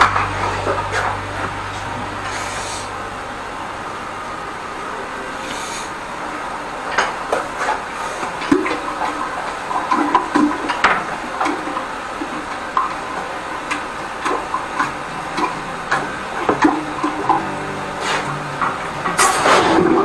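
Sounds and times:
hiss of jetting water: 5.2 - 6.4, 7.5 - 15.6.

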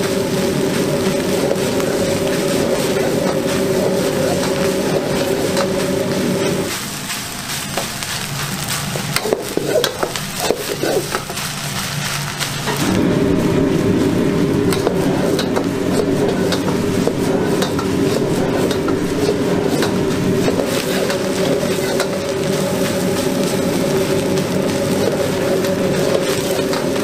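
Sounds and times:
gas burner rushing: 0.0 - 27.0
rice sizzling: 0.0 - 27.0
metal ladle scraping a wok: 14.8 - 27.0.

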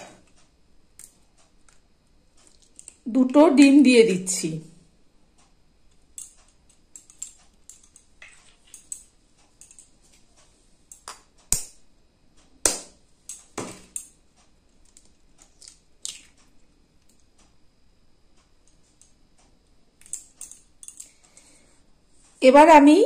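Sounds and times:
eggshell clicks and crackles: 14.8 - 17.2.

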